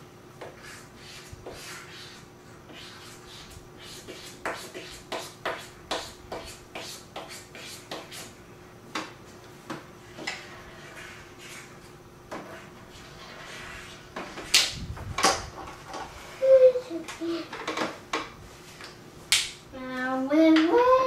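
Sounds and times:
faint steady hum: 0:00.0 - 0:21.0
markers scribbling on paper: 0:00.5 - 0:08.3, 0:10.5 - 0:11.8.

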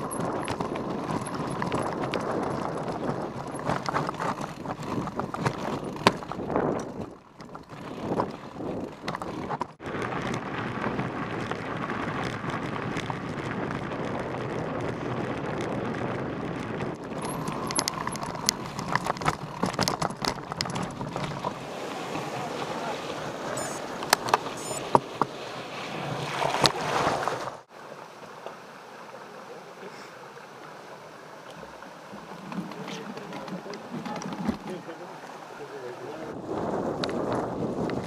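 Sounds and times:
bike clicks and rattles: 0:00.0 - 0:21.6, 0:32.4 - 0:34.8
tyres crunching over stones: 0:00.0 - 0:27.0.

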